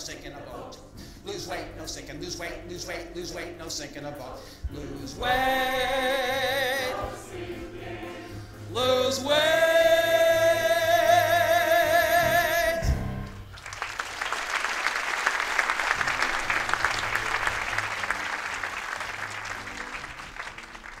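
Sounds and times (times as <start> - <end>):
chorus singing with vibrato: 0.0 - 12.6
audience applauding: 13.2 - 21.0.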